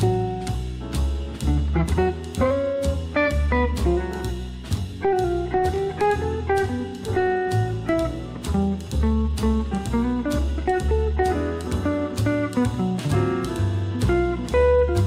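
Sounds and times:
guitar-led instrumental music: 0.0 - 15.0.

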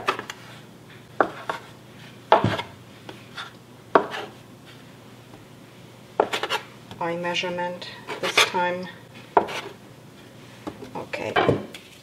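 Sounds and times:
scraper chopping on cutting board: 6.2 - 6.6, 9.4 - 9.7.

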